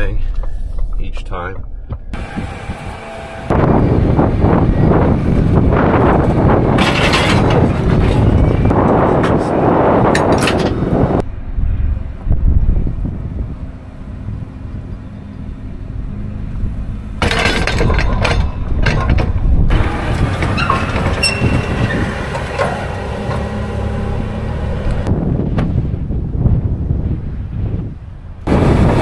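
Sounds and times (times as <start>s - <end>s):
tractor low rumble: 0.0s - 29.0s
rushing noise: 1.6s - 29.0s
hitch rattles and clanks: 3.5s - 9.4s, 10.0s - 11.0s, 17.1s - 24.2s.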